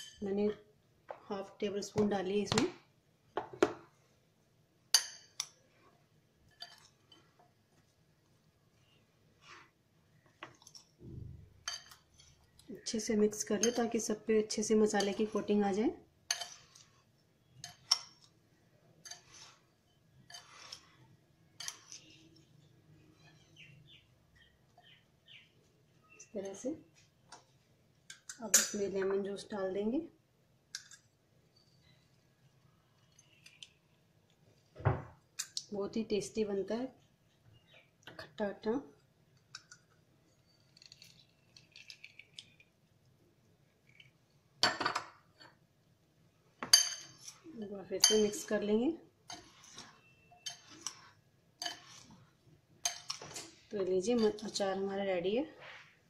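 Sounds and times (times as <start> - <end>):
metal spoon scraping glass bowl: 16.3 - 18.3, 19.0 - 23.8, 46.7 - 53.3, 54.1 - 54.6.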